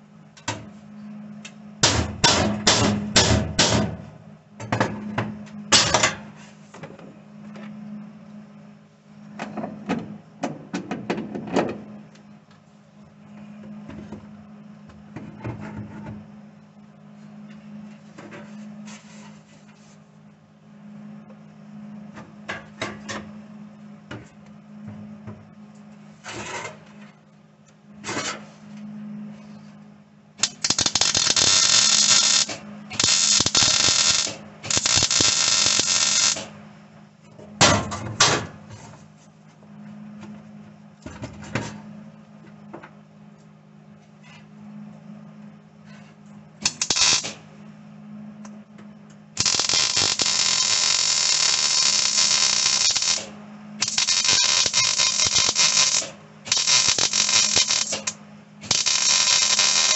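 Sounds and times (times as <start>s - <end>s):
steady low hum: 0.0s - 59.9s
arc welding crackle: 30.4s - 36.6s, 46.6s - 47.5s, 49.4s - 59.9s.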